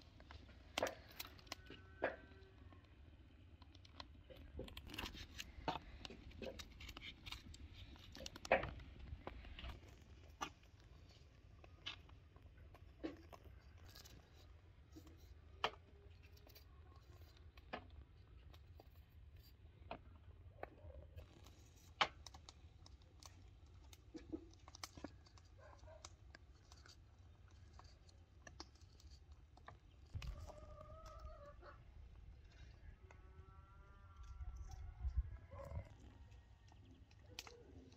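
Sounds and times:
knife scraping fruit: 4.4 - 8.8.

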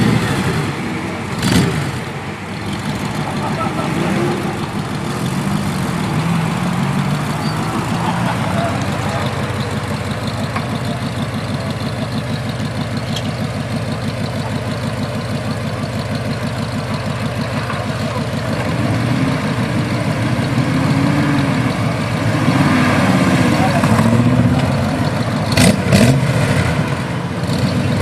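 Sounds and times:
car engine idling: 0.0 - 28.0.

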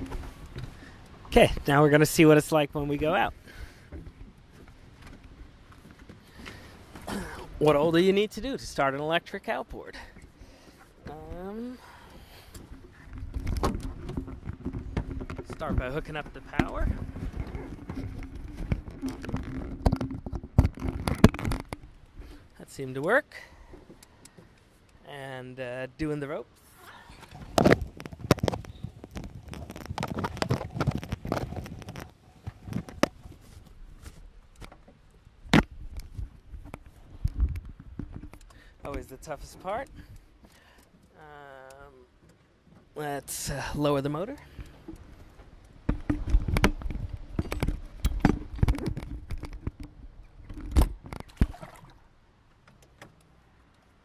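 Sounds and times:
rope rustling and clicking: 12.5 - 22.6, 26.7 - 43.0, 44.2 - 51.9.

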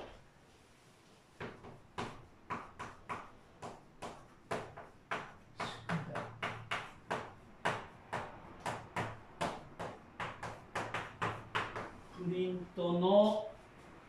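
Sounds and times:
chalk tapping and scraping on blackboard: 1.3 - 12.2.

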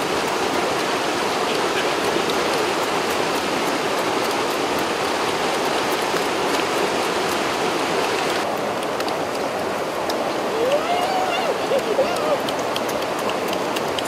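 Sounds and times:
waterfall pouring over rocks: 0.0 - 14.0.

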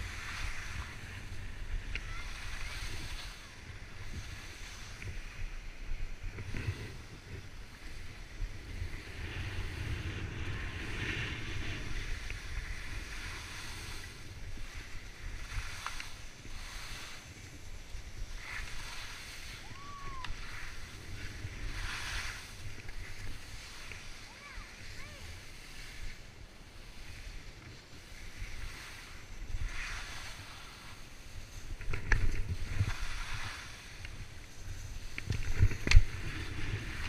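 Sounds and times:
ski edges scraping: 0.0 - 37.0
skis sliding on snow: 0.0 - 37.0
wind on microphone: 0.0 - 37.0.

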